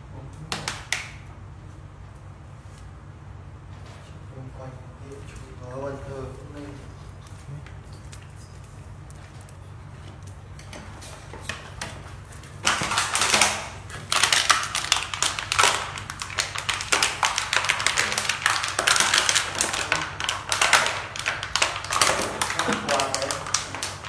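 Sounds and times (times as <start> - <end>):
plastic bottle crackling and crunching: 11.5 - 24.0.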